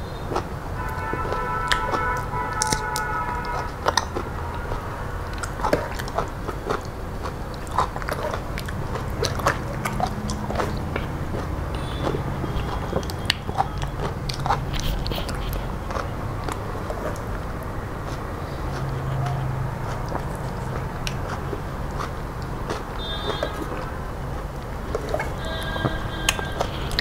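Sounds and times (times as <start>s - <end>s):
man chewing food: 0.0s - 27.0s.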